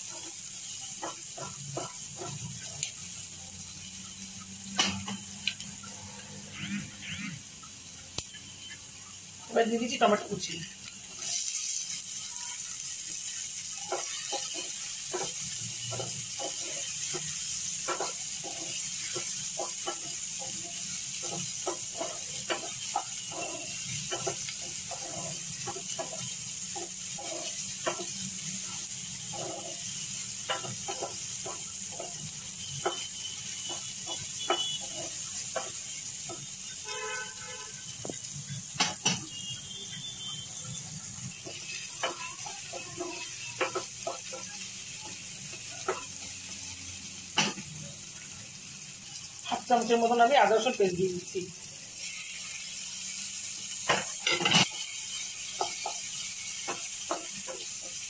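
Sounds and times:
spatula tapping and scraping pan: 0:00.0 - 0:03.0, 0:13.2 - 0:28.4, 0:29.1 - 0:36.6, 0:41.3 - 0:44.6, 0:45.5 - 0:46.3, 0:53.8 - 0:58.0
food sizzling in hot oil: 0:00.0 - 0:58.0.

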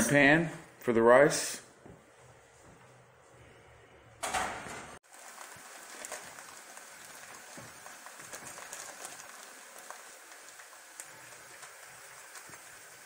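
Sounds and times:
rice grains pouring into mug: 0:05.1 - 0:13.0.

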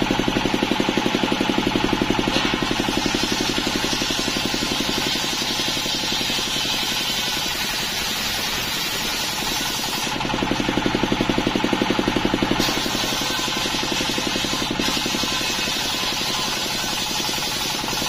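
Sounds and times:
diesel engine running: 0:00.0 - 0:18.0
circular saw cutting wood hiss: 0:02.5 - 0:10.2, 0:12.6 - 0:18.0.

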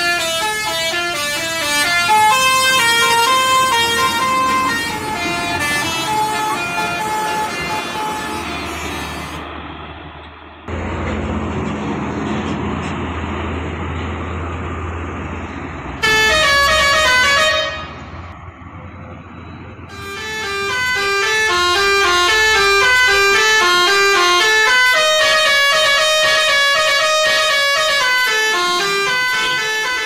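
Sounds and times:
musical air horn tune: 0:00.0 - 0:09.4, 0:16.0 - 0:18.0, 0:19.9 - 0:30.0
traffic rumble: 0:00.0 - 0:30.0.

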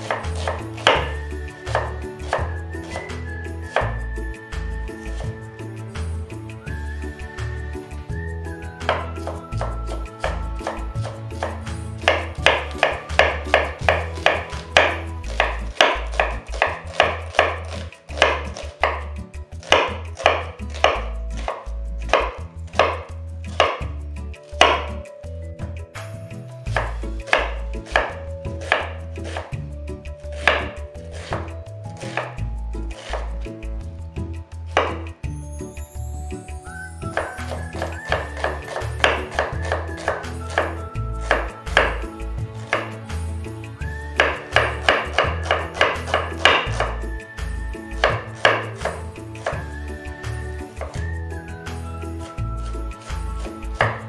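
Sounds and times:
knife chopping on wooden board: 0:00.0 - 0:04.0, 0:08.8 - 0:24.0, 0:24.6 - 0:25.0, 0:26.7 - 0:29.6, 0:30.3 - 0:33.5, 0:34.7 - 0:35.2, 0:37.1 - 0:43.2, 0:43.9 - 0:47.1, 0:47.9 - 0:49.7, 0:50.7 - 0:51.1, 0:53.0 - 0:54.0.

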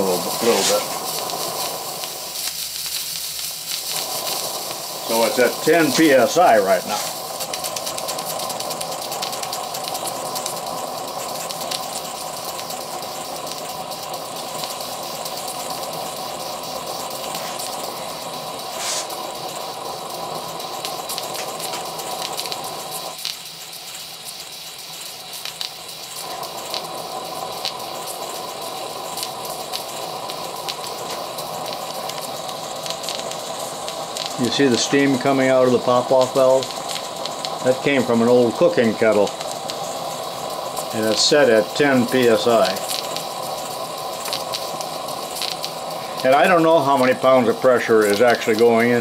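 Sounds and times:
steam hissing from valve: 0:00.0 - 0:49.0
fine ticks: 0:06.8 - 0:17.8, 0:20.2 - 0:46.4.

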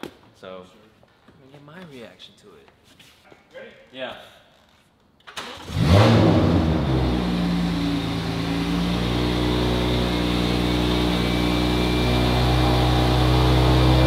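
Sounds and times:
car engine idling: 0:06.4 - 0:14.0.

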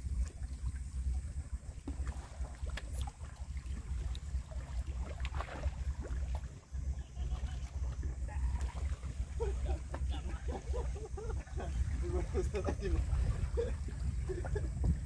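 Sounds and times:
water splashes: 0:00.0 - 0:15.0
wind buffeting microphone: 0:00.0 - 0:15.0.

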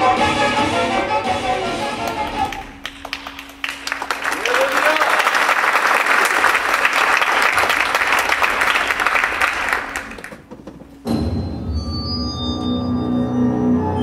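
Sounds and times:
audience applauding: 0:01.9 - 0:10.5.

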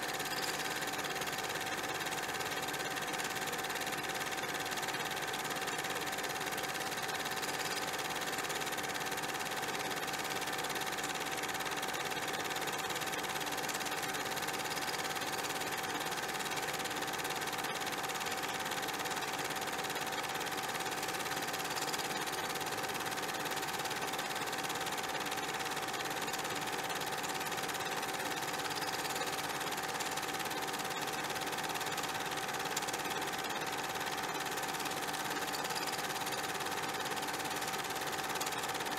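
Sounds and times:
machine running with steady hum: 0:00.0 - 0:38.9.

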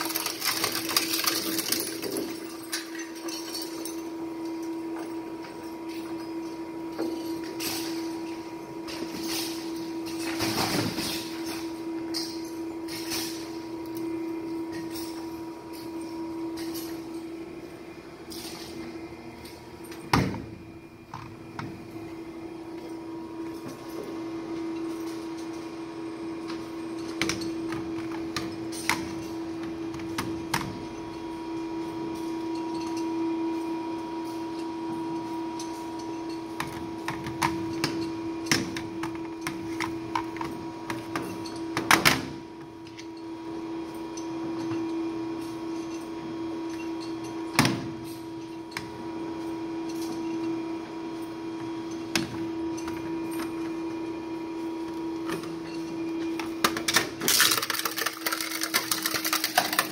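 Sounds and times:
plastic boxes clicking and knocking: 0:56.6 - 0:59.9.

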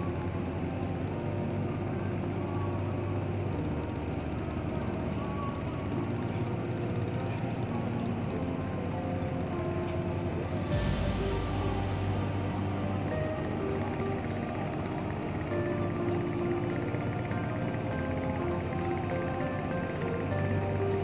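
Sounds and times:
background music with sustained notes: 0:00.0 - 0:21.0
boat engine rumbling: 0:00.0 - 0:21.0
deep bass: 0:10.0 - 0:21.0.

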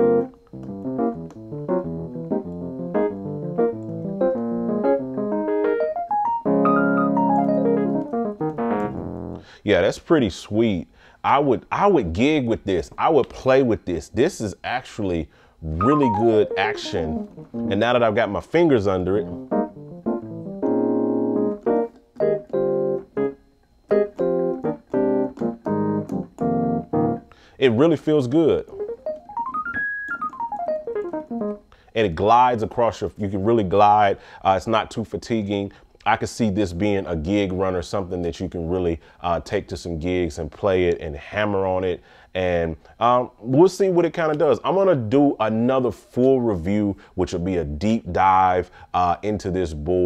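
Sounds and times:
electric piano chords and melody: 0:00.0 - 0:09.4, 0:15.8 - 0:17.8, 0:19.1 - 0:27.3, 0:28.7 - 0:31.7.

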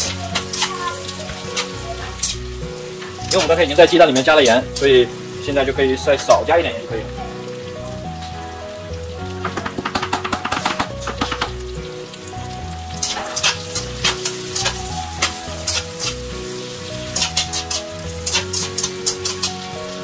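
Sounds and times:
spatula scraping a pan: 0:00.0 - 0:05.0, 0:13.0 - 0:19.8
food sizzling in a frying pan: 0:00.0 - 0:20.0.

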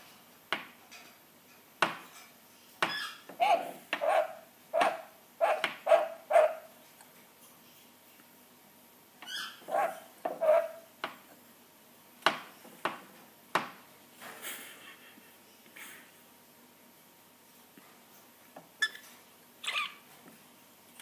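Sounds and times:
parrot mimicking dog barks: 0:03.3 - 0:06.7, 0:09.6 - 0:10.9.

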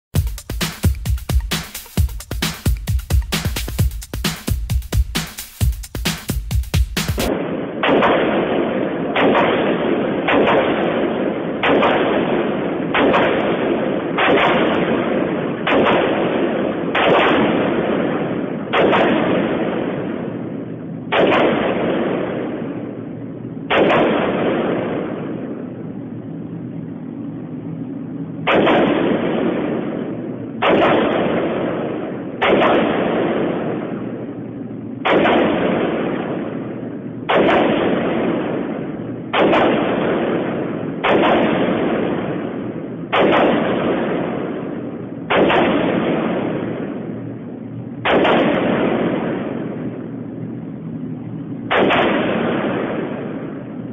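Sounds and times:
rifle gunshots with echo: 0:07.2 - 0:27.6, 0:28.3 - 0:50.5, 0:51.6 - 0:53.9.

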